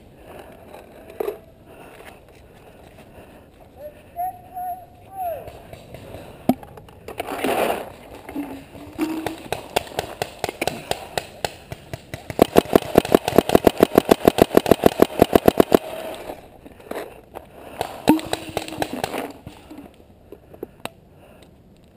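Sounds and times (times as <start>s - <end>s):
paintball marker firing: 9.1s - 16.1s, 17.8s - 19.7s.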